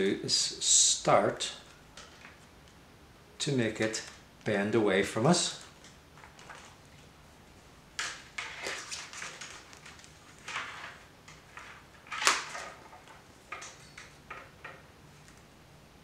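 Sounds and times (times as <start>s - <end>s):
willow rods rustling and scraping: 8.0s - 15.4s.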